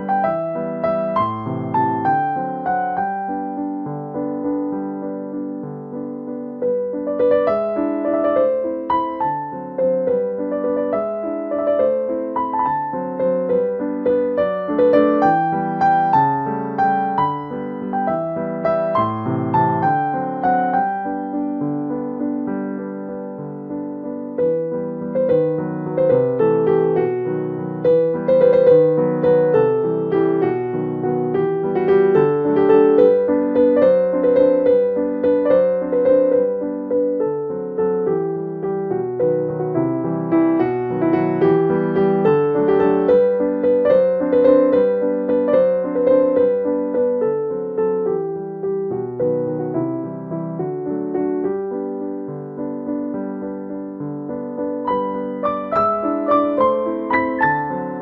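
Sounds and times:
gentle piano music: 0.0s - 58.0s.

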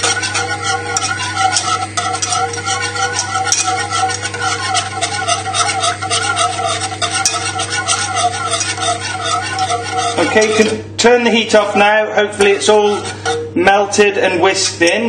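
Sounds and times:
steady low hum: 0.0s - 15.0s
whisk swishing in saucepan: 0.0s - 15.0s.

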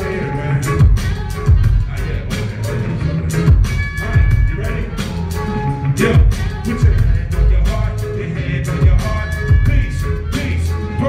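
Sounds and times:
hip-hop beat over loudspeakers: 0.0s - 11.0s.

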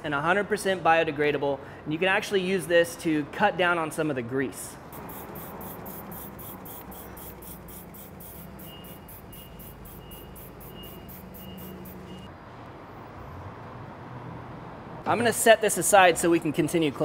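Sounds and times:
spray bottle hissing: 4.9s - 12.3s.

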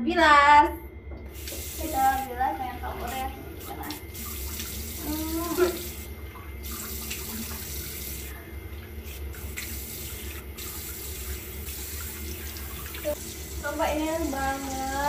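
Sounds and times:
tap running into sink: 1.2s - 1.8s
face rinsing splashes: 3.0s - 15.0s.

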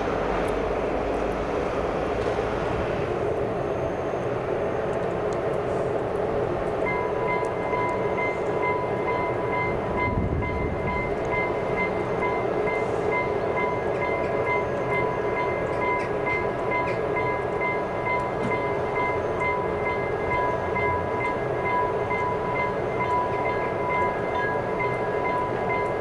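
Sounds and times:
train rumbling on tracks: 0.0s - 26.0s
pulsing high ringing tone: 6.8s - 26.0s.

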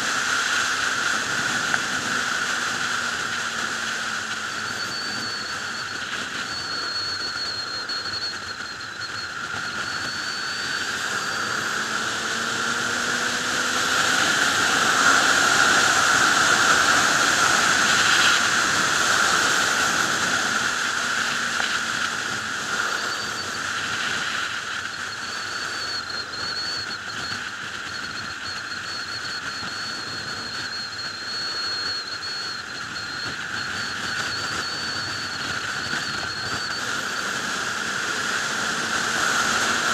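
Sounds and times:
faint motorcycle engine: 0.0s - 30.8s
thin high whistle: 0.0s - 39.9s
wind rushing over microphone: 0.0s - 39.9s.

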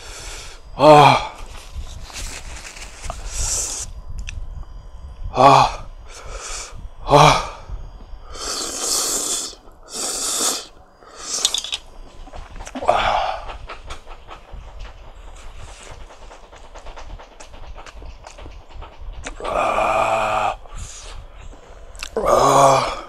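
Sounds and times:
man groaning: 0.8s - 1.4s, 5.4s - 5.9s, 7.0s - 7.6s, 22.2s - 23.0s
man slurping noodles: 8.4s - 11.5s
man gasping in pain: 22.1s - 23.0s.

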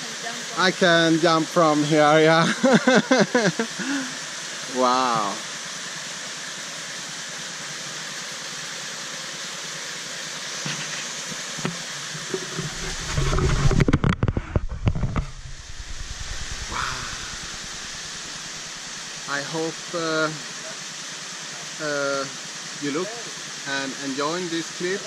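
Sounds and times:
small waterfall rushing: 0.0s - 25.0s
knocking on the microphone: 11.6s - 15.5s.

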